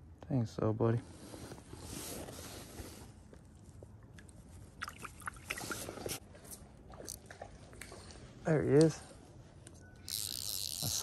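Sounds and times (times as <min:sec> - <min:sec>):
water splashing: 0:04.7 - 0:06.2.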